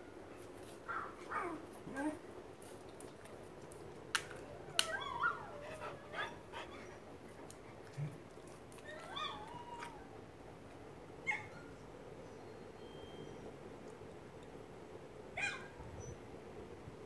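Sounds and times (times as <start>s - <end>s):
dog whining and yipping: 0.9s - 2.2s, 4.7s - 7.0s, 8.8s - 10.2s.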